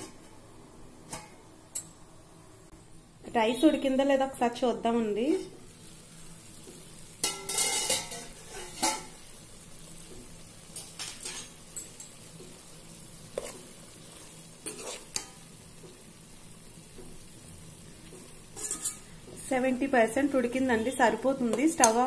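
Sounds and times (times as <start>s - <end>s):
spoon scraping metal pot: 14.6s - 15.4s, 18.6s - 19.1s.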